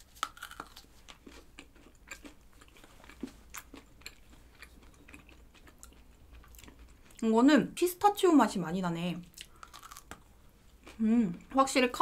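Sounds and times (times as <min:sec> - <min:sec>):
chocolate crunching while chewing: 0:00.0 - 0:07.2, 0:09.3 - 0:11.0.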